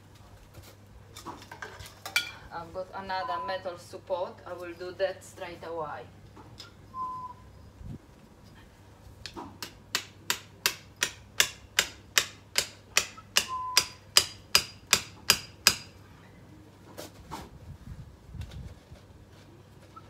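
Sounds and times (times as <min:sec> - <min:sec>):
hammer striking metal: 0:09.6 - 0:15.9.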